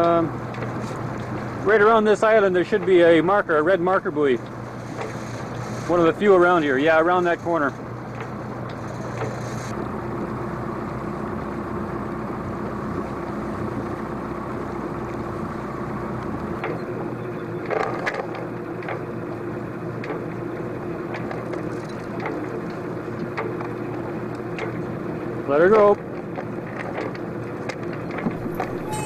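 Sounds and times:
boat engine droning: 0.0s - 29.0s.

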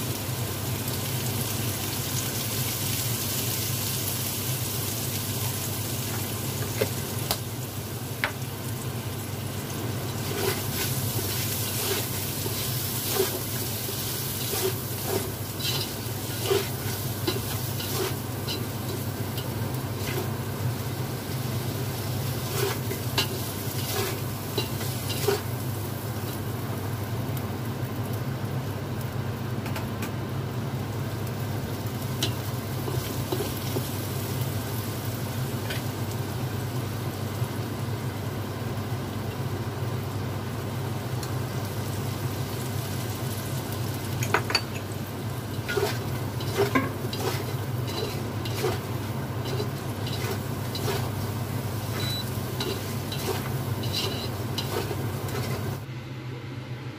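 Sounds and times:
potatoes sizzling in oil: 0.0s - 55.9s
steady low hum: 5.6s - 56.9s
spatula scraping and clinking on pan: 10.1s - 20.3s, 22.5s - 25.5s, 45.6s - 51.2s, 51.9s - 55.8s.

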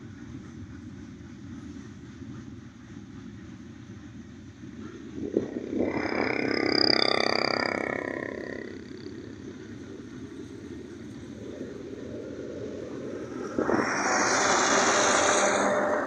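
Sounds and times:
train wheels rumbling on rails: 0.0s - 16.0s
tractor passing: 5.2s - 16.0s.

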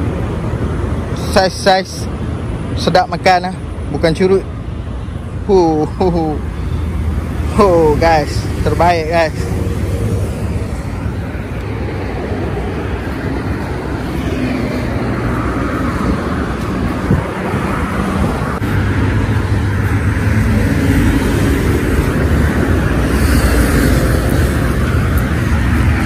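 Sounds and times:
highway traffic rushing hum: 0.0s - 26.0s.

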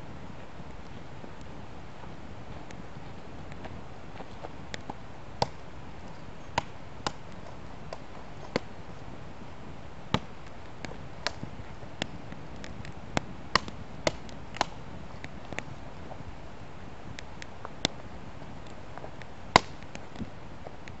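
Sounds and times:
low fire hiss: 0.0s - 21.0s
campfire crackling and popping: 0.6s - 16.4s, 17.0s - 21.0s.

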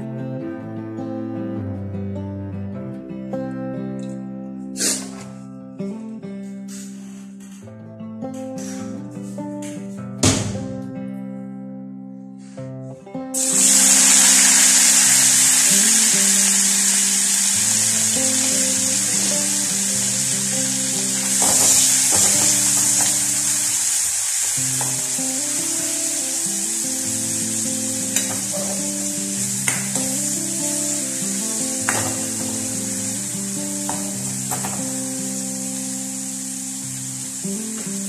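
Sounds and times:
fish sizzling in hot oil: 13.4s - 38.0s
spatula tapping pan: 21.2s - 23.5s, 24.8s - 25.1s, 31.8s - 32.6s.

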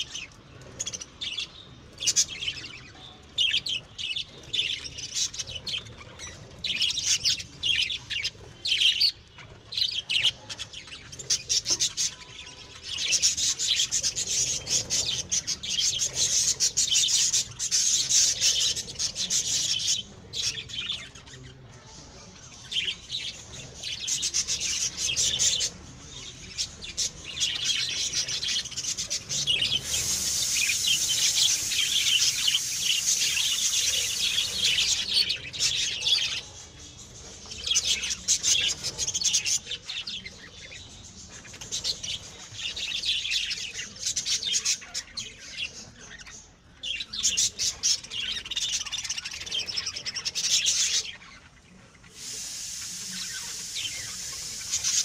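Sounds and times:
budgerigars and cockatiels chirping: 0.0s - 55.0s.

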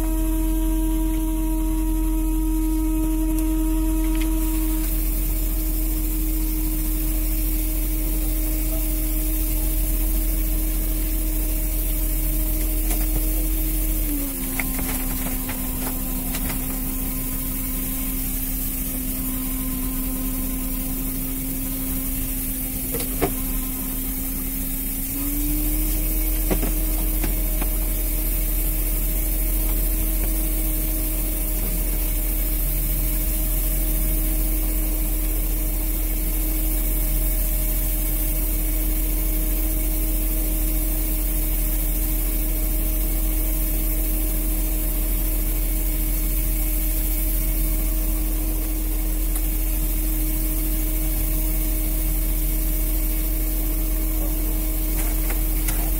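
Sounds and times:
boat engine droning: 0.0s - 55.9s.

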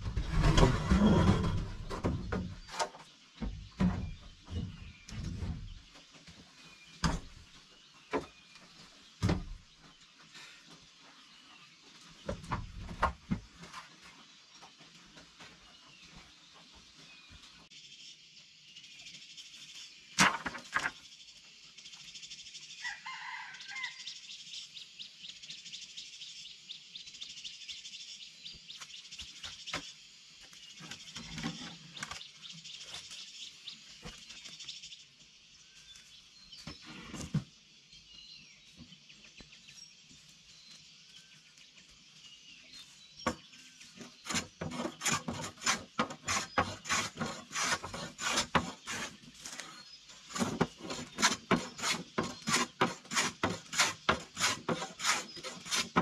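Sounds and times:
high chirping in forest: 20.8s - 56.0s
hand tool rasping wood: 44.0s - 56.0s.

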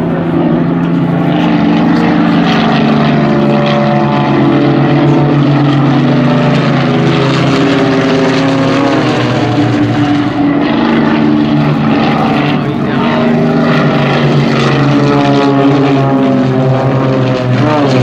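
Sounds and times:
propeller planes droning: 0.0s - 18.0s.

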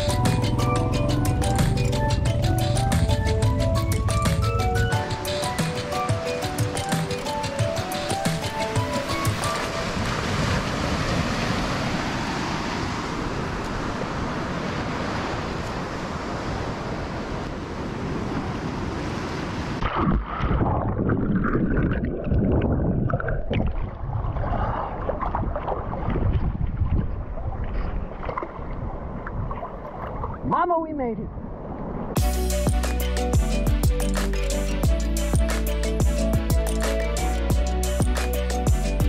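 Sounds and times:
surf washing onto beach: 5.0s - 20.9s
underwater churning rumble: 19.8s - 27.6s
splashes and bubbling: 19.8s - 30.5s.

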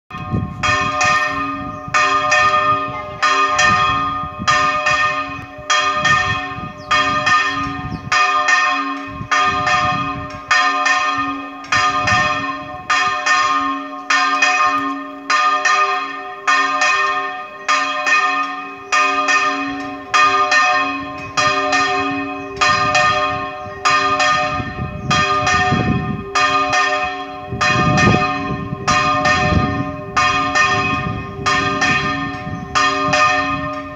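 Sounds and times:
church bell ringing: 0.1s - 33.9s.

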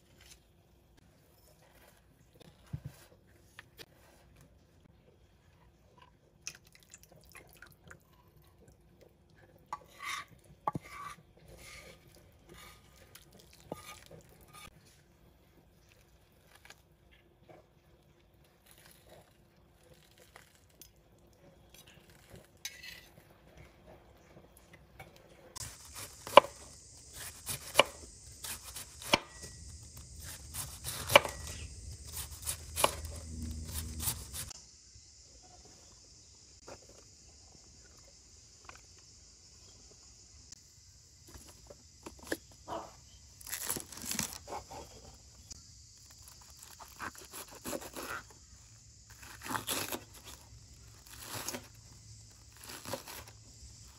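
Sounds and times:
faint steady hum: 0.0s - 53.9s
knife chopping cabbage on board: 25.6s - 29.6s, 30.2s - 34.5s.

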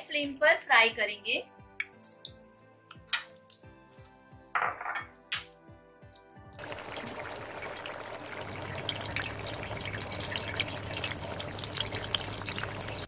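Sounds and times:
chicken sizzling in hot oil: 6.3s - 13.0s.

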